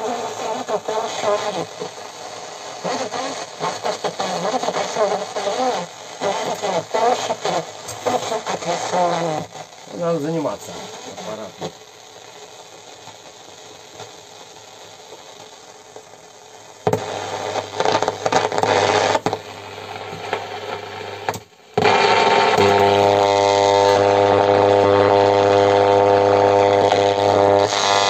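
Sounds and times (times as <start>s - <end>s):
radio hiss: 0.0s - 28.0s
radio static crackling: 0.0s - 28.0s
loud steady buzz: 16.8s - 28.0s.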